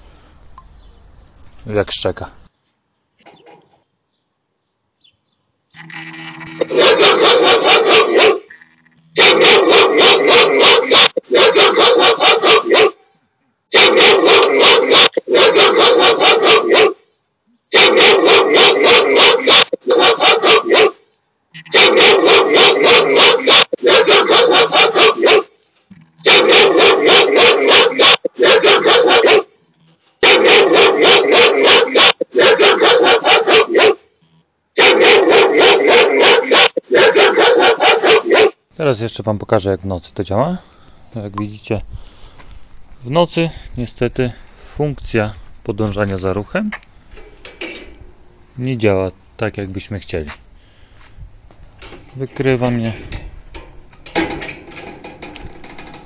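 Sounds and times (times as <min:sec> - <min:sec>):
recorded dog barking from speaker: 0:06.6 - 0:08.5, 0:09.2 - 0:17.1, 0:17.7 - 0:25.6, 0:26.2 - 0:29.6, 0:30.2 - 0:34.1, 0:34.8 - 0:38.7.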